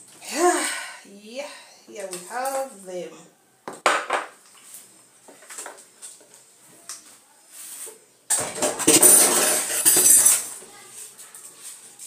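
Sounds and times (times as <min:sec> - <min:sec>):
utensils and dishes clicking: 0:08.3 - 0:10.5.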